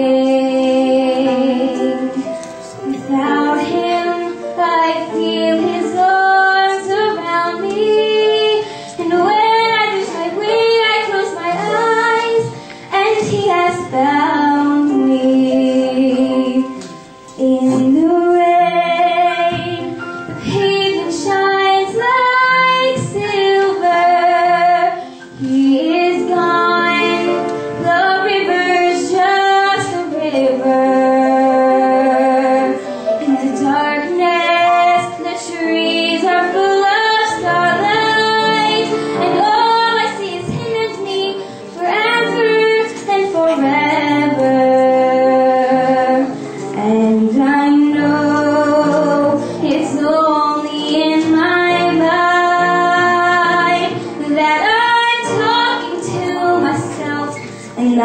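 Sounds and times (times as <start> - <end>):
girl singing into a microphone: 0.0 - 58.0.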